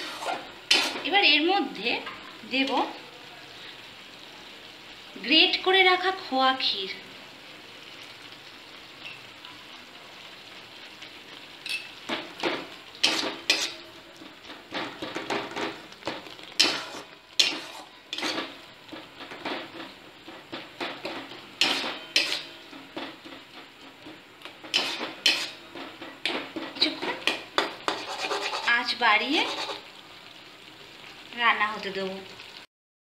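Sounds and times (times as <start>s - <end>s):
metal spatula scraping a metal pan: 0.0s - 1.1s, 12.4s - 13.9s, 16.5s - 29.9s
faint sizzle: 0.0s - 32.7s.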